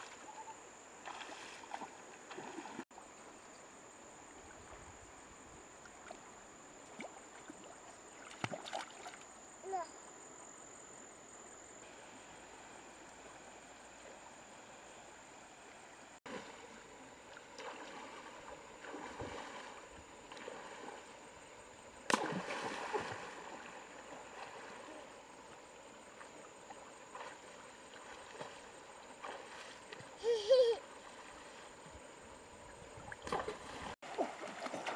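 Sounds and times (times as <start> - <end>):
splashes of wading: 0.0 - 3.3, 5.7 - 9.6, 16.2 - 34.9
river water flowing over stones: 11.8 - 34.9
child vocal sounds: 30.2 - 30.8.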